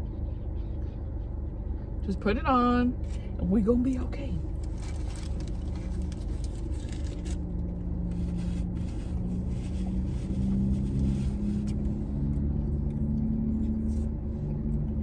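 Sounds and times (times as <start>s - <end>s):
car cabin low rumble: 0.0s - 15.0s
paper wrapper crinkling: 4.5s - 11.5s.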